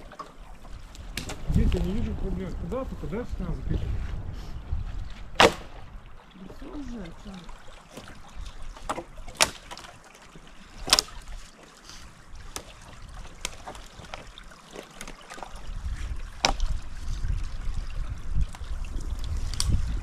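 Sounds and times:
dry branches cracking and snapping: 0.0 - 2.0, 5.2 - 5.8, 8.8 - 10.0, 10.8 - 11.2, 12.5 - 15.4, 16.4 - 16.8, 19.2 - 20.0
wind rumbling on microphone: 0.0 - 10.0, 10.6 - 14.6, 15.4 - 20.0.

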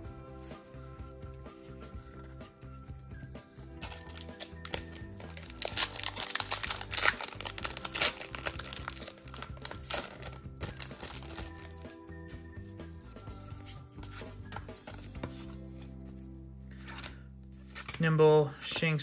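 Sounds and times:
background music with bass line: 0.0 - 17.7
foil wrapper crinkling: 3.8 - 11.8.

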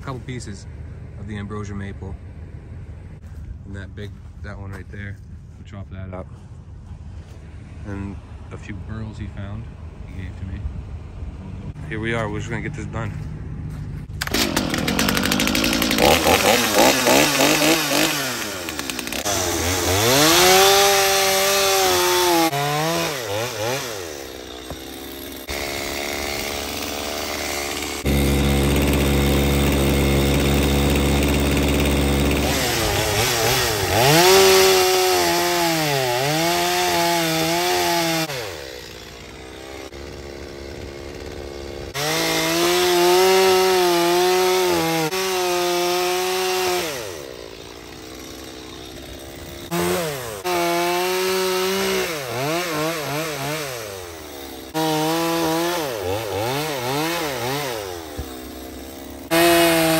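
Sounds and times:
chainsaw cutting logs: 12.0 - 59.9.

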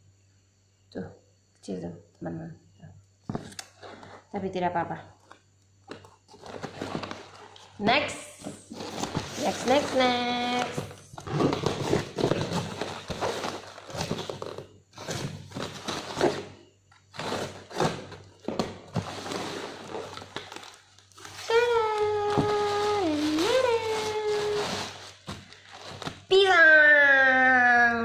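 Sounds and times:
plastic packaging crinkling: 5.9 - 7.8, 8.5 - 26.3
high voice holding a note: 21.4 - 24.8.

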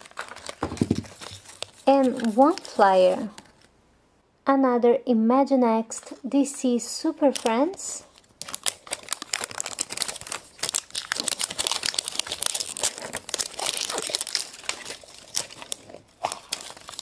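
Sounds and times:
wrapper crinkling: 0.0 - 3.7, 7.2 - 17.0.

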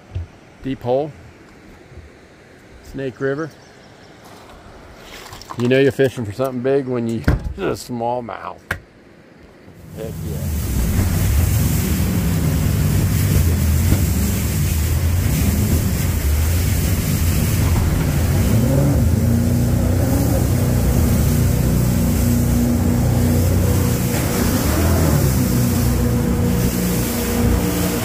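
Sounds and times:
jet boat engine running hard: 9.8 - 28.0
rush of whitewater: 9.8 - 28.0.

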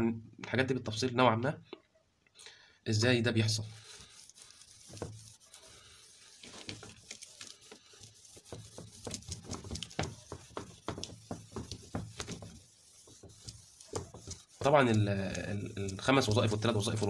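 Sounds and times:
eraser rubbing whiteboard: 3.4 - 17.0.

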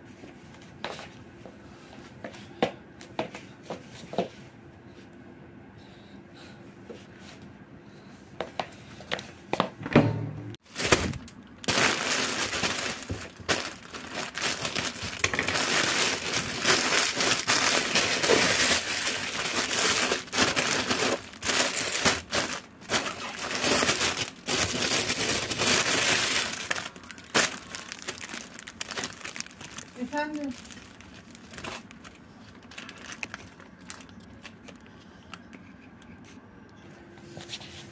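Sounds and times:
plastic bag crinkling and rustling: 10.6 - 34.9.

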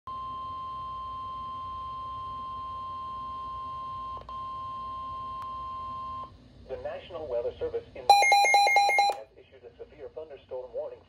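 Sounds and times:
high alarm beep from small speaker: 8.1 - 9.2.

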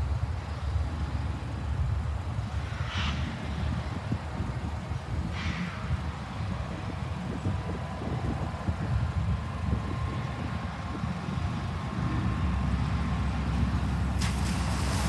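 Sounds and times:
distant freight train rumbling: 0.0 - 15.0
wind buffeting microphone: 0.0 - 15.0.

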